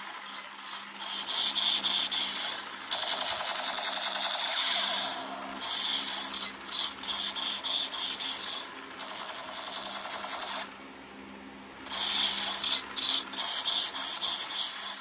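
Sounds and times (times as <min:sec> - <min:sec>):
toy motor whirring: 0:00.0 - 0:10.7, 0:11.8 - 0:15.0
electronic machine-gun sound effect: 0:00.0 - 0:10.8, 0:11.8 - 0:15.0.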